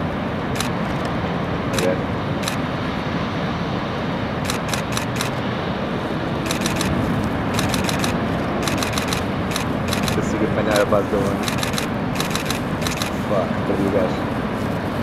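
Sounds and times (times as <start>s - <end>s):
ocean surf: 0.0s - 15.0s
wind: 0.0s - 15.0s
camera shutter clicks: 0.6s - 1.1s, 1.8s - 2.6s, 4.4s - 5.4s, 6.4s - 10.2s, 11.3s - 13.2s.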